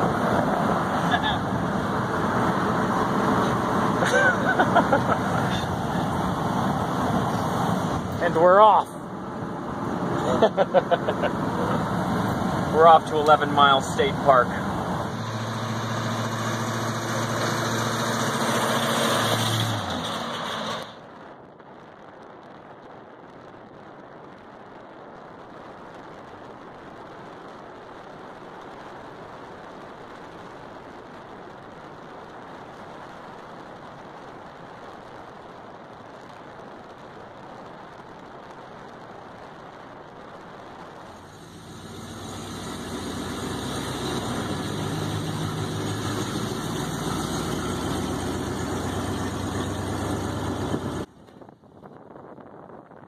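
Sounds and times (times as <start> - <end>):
engine hum with held tones: 0.0 - 21.3, 39.7 - 53.0
road and engine rumble: 0.0 - 53.0.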